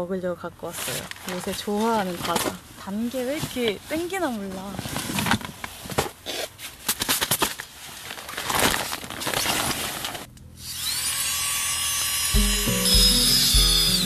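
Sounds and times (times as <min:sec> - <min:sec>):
plastic packaging crinkling: 0:00.7 - 0:10.3
music: 0:12.3 - 0:14.0.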